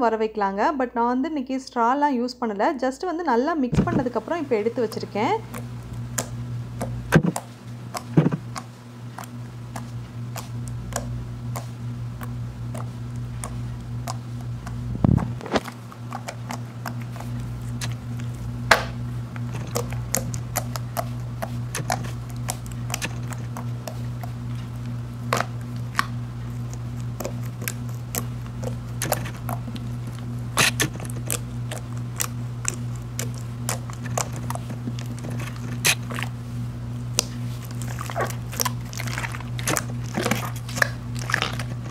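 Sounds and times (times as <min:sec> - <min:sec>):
steady low hum: 0:03.0 - 0:41.9.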